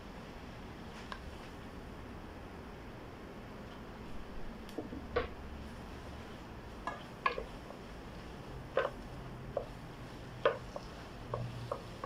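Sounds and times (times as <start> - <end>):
wooden spoon stirring in a pot: 4.9 - 12.0
spoon knocking against pot: 6.9 - 7.5, 8.7 - 9.8, 10.4 - 12.0.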